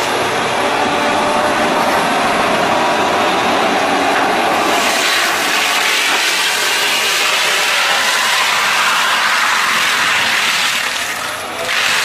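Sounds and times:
tree mulcher grinding wood: 4.5s - 12.0s.

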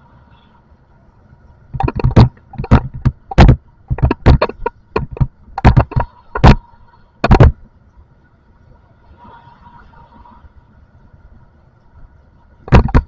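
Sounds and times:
faint steady hum: 0.0s - 13.0s
loud sharp bangs and knocks: 1.8s - 6.6s.

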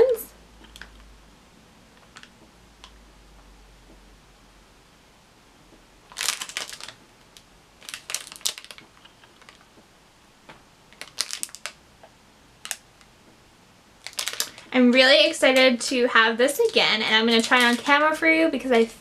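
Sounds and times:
plastic wrapper crinkling: 0.0s - 1.0s, 6.1s - 9.8s, 10.9s - 11.8s, 12.6s - 13.1s, 14.0s - 15.9s, 16.5s - 18.1s.

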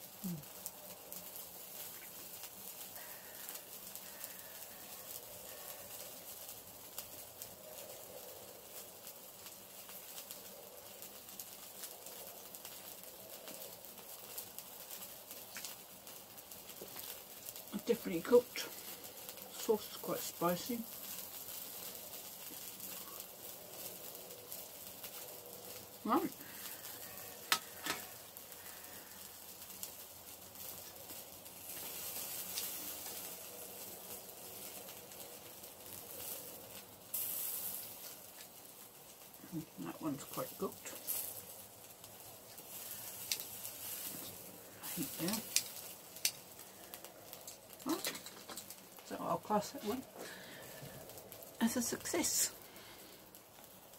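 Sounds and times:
sausages crackling on a grill: 0.0s - 53.9s
metal tongs clicking on grill: 27.5s - 28.1s, 43.2s - 43.6s, 45.4s - 46.5s.

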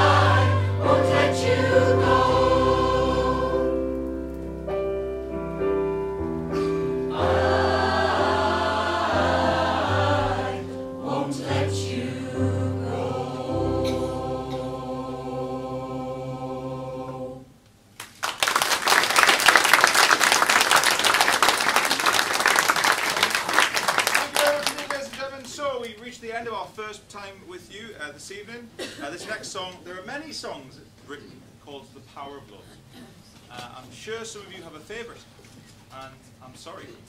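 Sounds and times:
mixed choir singing: 0.0s - 4.0s, 7.0s - 17.6s
audience applause: 18.0s - 25.2s.

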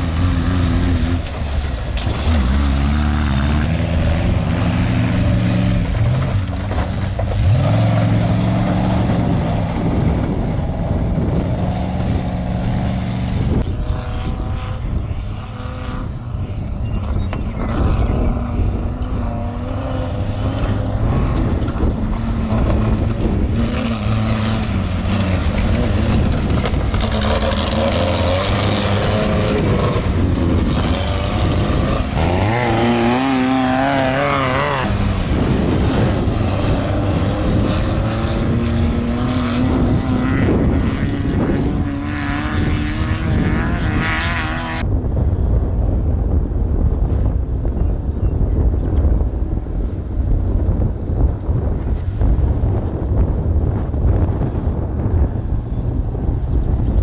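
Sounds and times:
dense rushing noise: 0.0s - 13.9s, 17.6s - 47.8s
racing engines revving: 0.0s - 44.8s.

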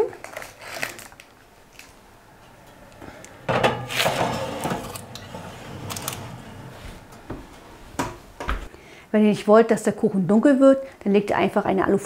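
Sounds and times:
metal pan scraping on wire rack: 3.5s - 7.2s.

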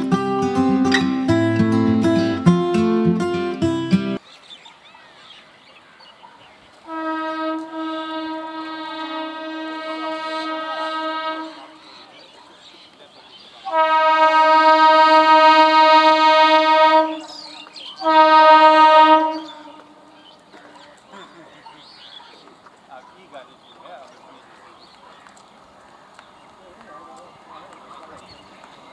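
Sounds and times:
train horn blasts: 6.8s - 12.0s, 13.6s - 20.1s.

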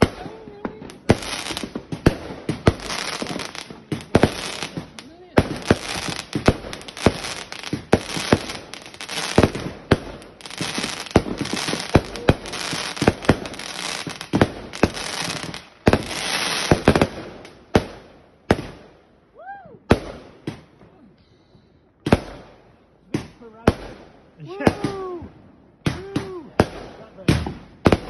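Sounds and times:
fireworks bangs and crackling: 0.0s - 21.0s, 22.0s - 28.0s.

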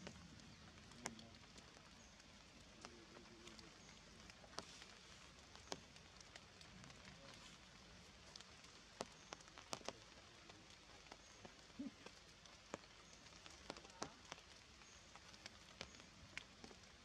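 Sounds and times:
low steady hiss: 0.0s - 17.0s
rainwater dripping from foliage: 0.0s - 17.0s.

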